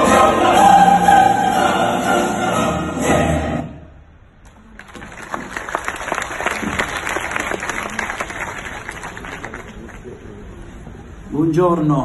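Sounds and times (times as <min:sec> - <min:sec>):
audience applauding: 0:04.7 - 0:10.3.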